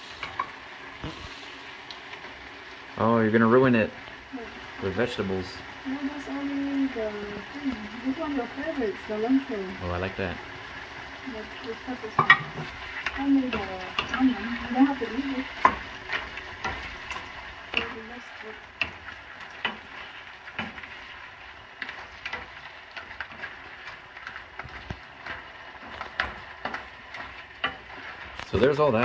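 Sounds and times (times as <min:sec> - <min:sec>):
food sizzling in a wok: 0:00.0 - 0:29.0
wooden spatula scraping pan: 0:12.0 - 0:29.0.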